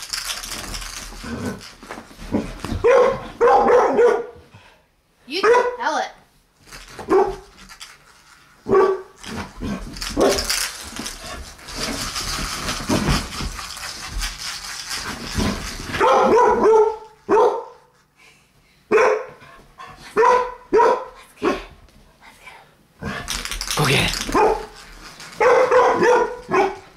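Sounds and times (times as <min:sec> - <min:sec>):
dog barking: 0:02.8 - 0:04.4, 0:05.4 - 0:05.8, 0:07.1 - 0:07.4, 0:08.7 - 0:09.1, 0:16.0 - 0:17.9, 0:18.9 - 0:19.4, 0:20.2 - 0:21.6, 0:24.4 - 0:24.7, 0:25.4 - 0:26.8.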